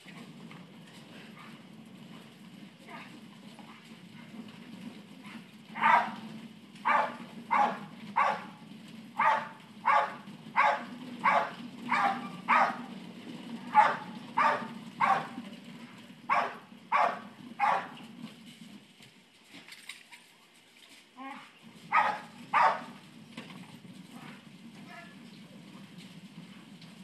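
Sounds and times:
dog barking: 5.8s - 6.2s, 6.8s - 8.5s, 9.2s - 12.8s, 13.7s - 15.4s, 16.3s - 18.0s, 21.9s - 23.0s.

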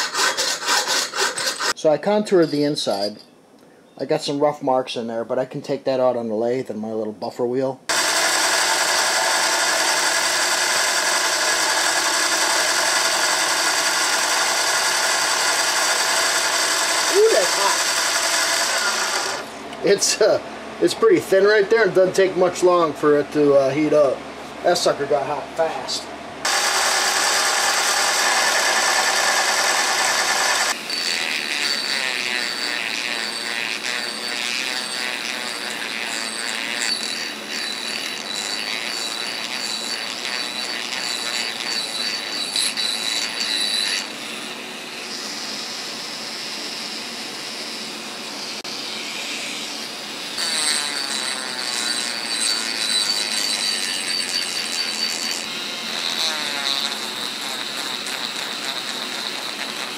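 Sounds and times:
rotary tool grinding steel: 0.0s - 1.8s, 7.9s - 20.2s, 26.4s - 59.9s
lathe sanding drum whining: 7.9s - 20.2s, 26.4s - 59.9s.

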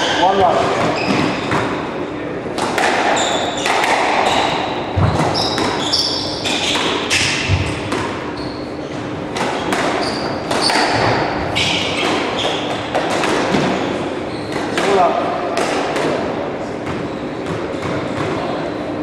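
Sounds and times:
shoes squeaking on wooden floor: 0.0s - 1.7s, 3.2s - 14.8s
squash ball struck by rackets: 0.0s - 1.9s, 2.5s - 8.4s, 9.0s - 13.9s, 14.5s - 18.5s.

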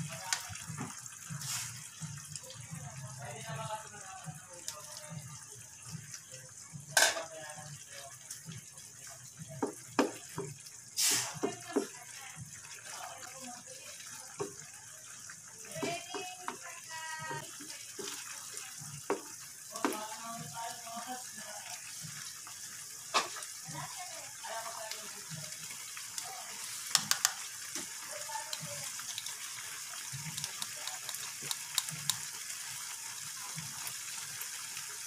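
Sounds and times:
eggs sizzling in a pan: 0.0s - 35.0s
spatula knocking and scraping pan: 19.0s - 20.0s.

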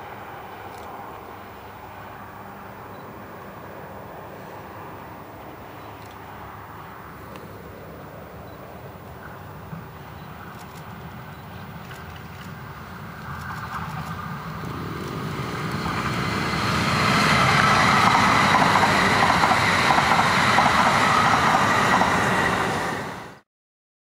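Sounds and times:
electric train passing at speed: 0.0s - 23.4s.

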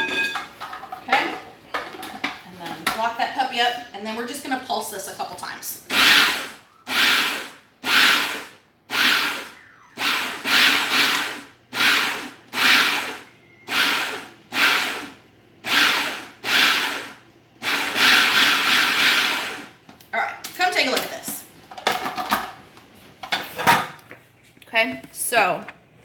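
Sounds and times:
food processor pulsing: 5.9s - 19.8s.

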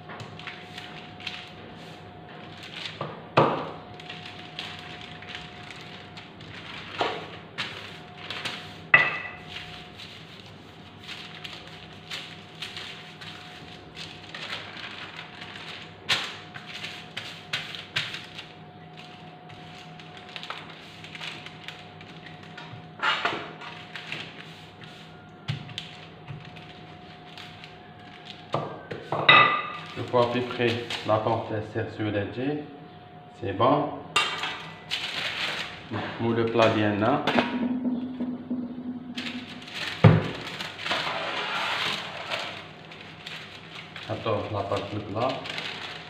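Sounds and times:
paper rustling: 0.3s - 3.0s, 3.9s - 22.6s, 23.6s - 28.5s, 29.8s - 31.2s, 34.9s - 36.0s, 39.2s - 46.0s.

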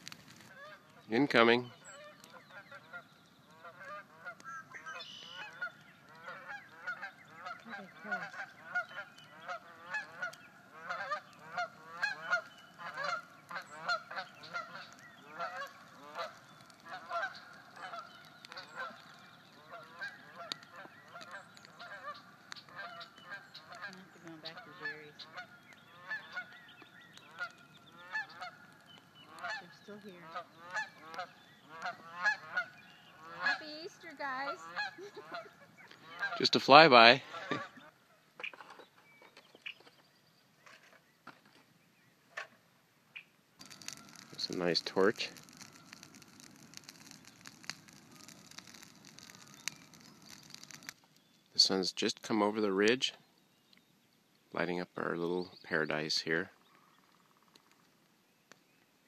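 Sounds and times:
geese honking in flight: 2.0s - 26.6s, 27.3s - 37.8s.

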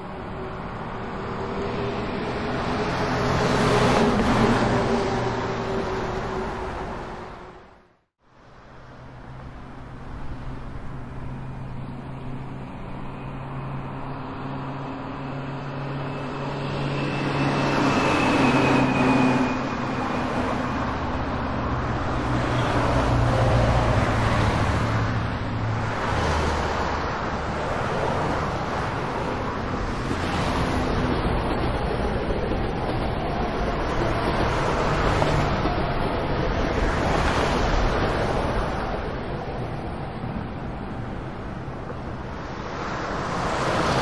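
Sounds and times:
train rumbling on rails: 0.0s - 7.9s, 9.2s - 44.0s
train engine hum: 8.6s - 44.0s
high squeal: 14.7s - 23.0s.

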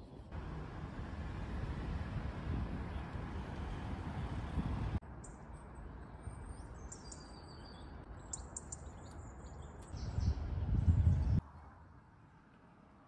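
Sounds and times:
small birds chirping: 5.2s - 11.4s.

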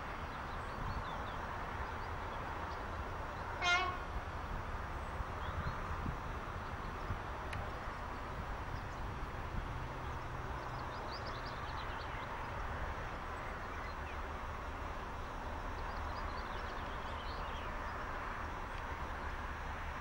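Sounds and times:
birds chirping: 15.1s - 18.8s.

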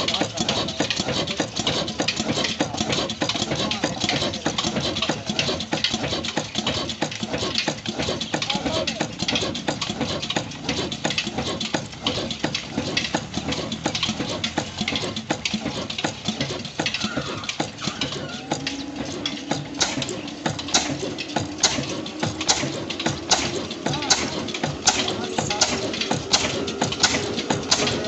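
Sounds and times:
old engine clattering: 0.0s - 28.0s
steady hum: 18.4s - 28.0s.

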